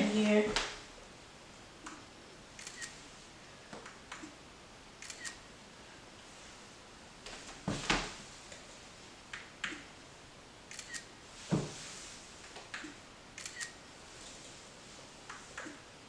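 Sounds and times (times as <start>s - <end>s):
camera shutter double click: 5.0s - 5.4s, 10.7s - 11.1s, 13.4s - 13.8s.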